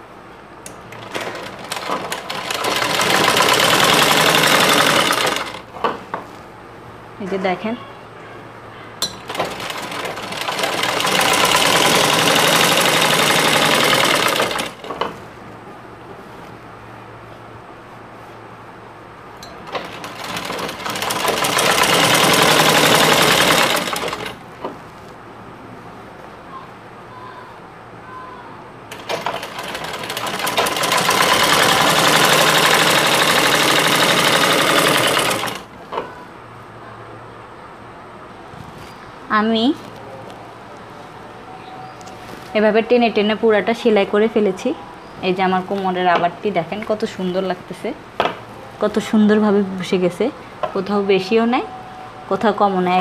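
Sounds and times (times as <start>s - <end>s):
sewing machine clicks: 0.6s - 5.6s, 9.3s - 15.1s, 19.6s - 24.4s, 28.9s - 35.7s
sewing machine stitching: 0.9s - 5.6s, 9.3s - 15.1s, 19.6s - 24.4s, 28.9s - 35.7s.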